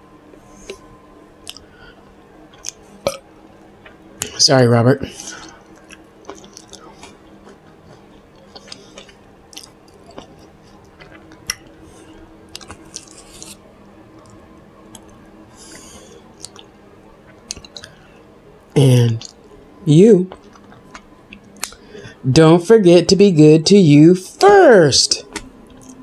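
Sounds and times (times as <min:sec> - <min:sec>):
tongue clicks: 0:16.4 - 0:16.7, 0:17.5 - 0:17.9, 0:20.3 - 0:21.8
wet lip smacks: 0:16.4 - 0:16.7, 0:17.5 - 0:17.9.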